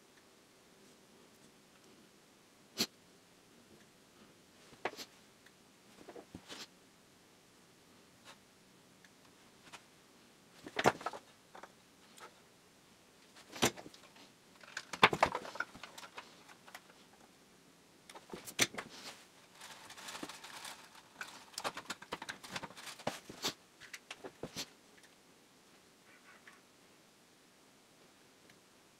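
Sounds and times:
small tools clicking and rattling: 13.6s - 17.0s
soft rustling: 18.1s - 24.8s.

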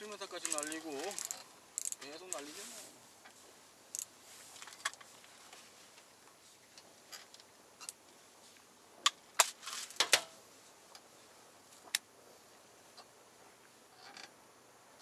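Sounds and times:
fishing tackle clicking and knocking: 0.4s - 2.4s, 3.2s - 5.1s.

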